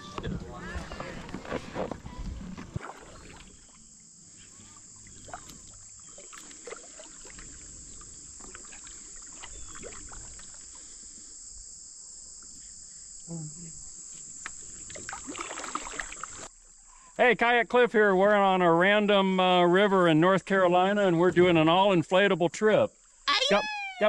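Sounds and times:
high-pitched insect chorus: 0:02.5 - 0:17.6.

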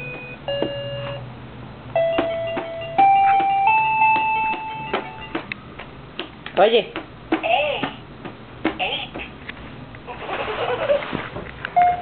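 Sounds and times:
toy piano notes: 0:02.0 - 0:05.5.

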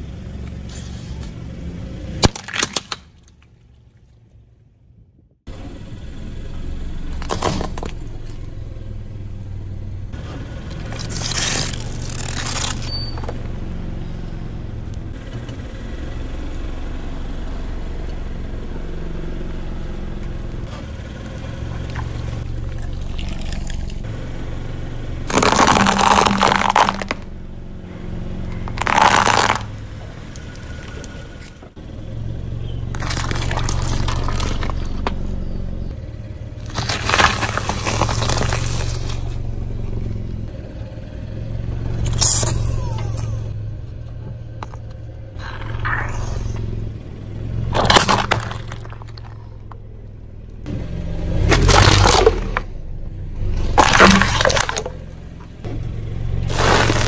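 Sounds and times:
car engine at low speed: 0:00.0 - 0:57.0
tyre crushing plastic objects: 0:02.2 - 0:03.5, 0:10.8 - 0:13.4, 0:25.3 - 0:27.3, 0:28.7 - 0:29.8, 0:32.9 - 0:35.3, 0:36.6 - 0:39.3, 0:47.7 - 0:49.4, 0:51.5 - 0:52.7, 0:53.6 - 0:55.0, 0:56.4 - 0:57.0
tomatoes squashed with wet crunch: 0:25.3 - 0:27.2, 0:32.9 - 0:35.3, 0:47.7 - 0:49.4, 0:51.5 - 0:52.6, 0:53.6 - 0:55.0, 0:56.5 - 0:57.0.

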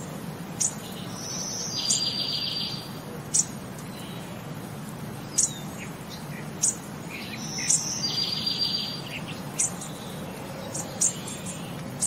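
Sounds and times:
bird chirping: 0:00.0 - 0:04.6, 0:05.2 - 0:12.0
bird trilling: 0:06.6 - 0:09.8.

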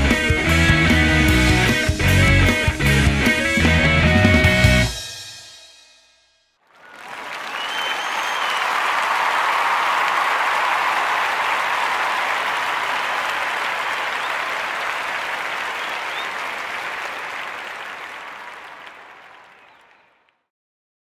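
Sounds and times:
crowd applause: 0:06.6 - 0:20.3.

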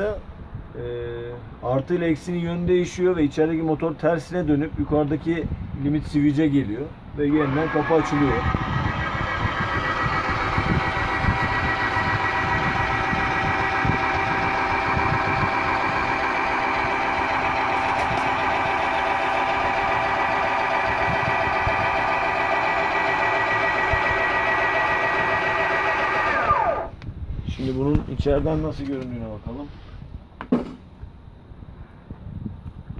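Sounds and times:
electric motor whining: 0:07.3 - 0:27.0.

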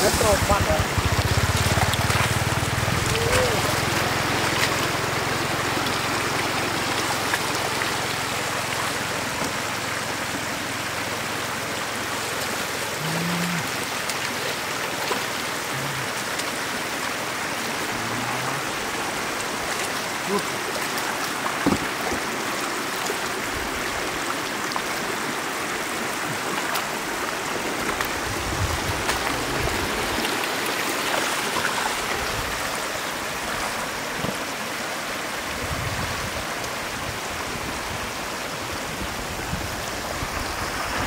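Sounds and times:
water rushing through flooded field: 0:00.0 - 0:41.0
small splashes and knocks: 0:00.6 - 0:09.9, 0:13.9 - 0:16.7, 0:19.4 - 0:23.4.

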